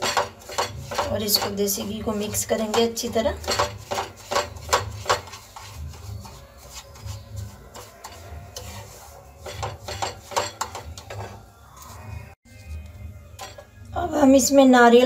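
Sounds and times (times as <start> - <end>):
spatula tapping against pan: 0.0 - 6.4, 9.4 - 11.3
wooden spatula scraping a pan: 0.0 - 12.7.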